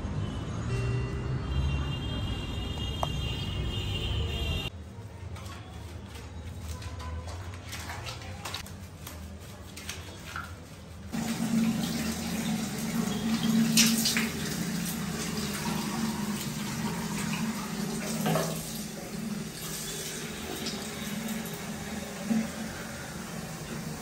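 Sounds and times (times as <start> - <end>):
water pouring into washbasin: 9.8 - 24.0.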